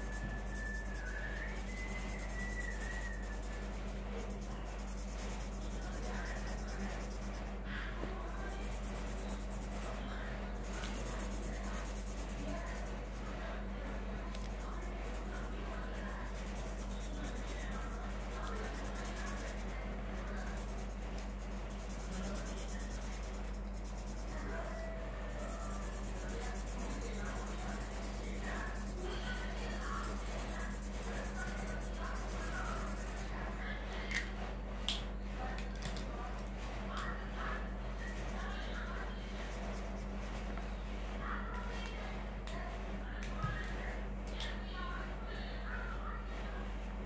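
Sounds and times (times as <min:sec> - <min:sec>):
felt-tip pen scratching on paper: 0:00.0 - 0:33.4, 0:37.9 - 0:40.5
steady low hum: 0:00.0 - 0:47.0.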